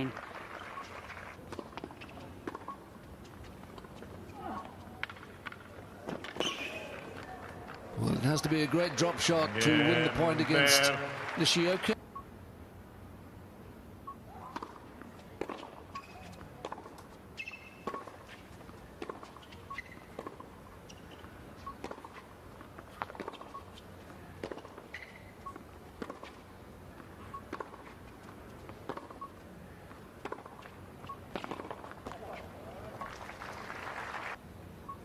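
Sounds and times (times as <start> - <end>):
shoe squeaks: 1.9 - 5.0, 6.2 - 7.2, 15.5 - 16.4, 17.4 - 22.3, 22.9 - 23.9, 24.8 - 25.6.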